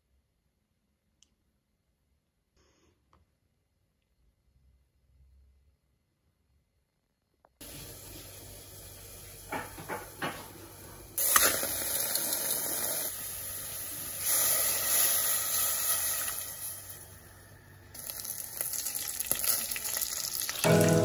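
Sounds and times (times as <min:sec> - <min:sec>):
beef sizzling in a pot: 0:07.6 - 0:17.2, 0:17.9 - 0:21.0
tap water running into a pot: 0:11.2 - 0:17.0, 0:18.0 - 0:20.8.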